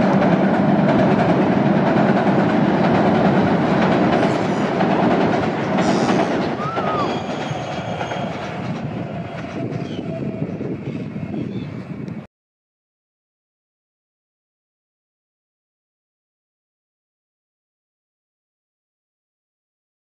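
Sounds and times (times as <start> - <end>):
train passing with rattling wheels: 0.0 - 12.3.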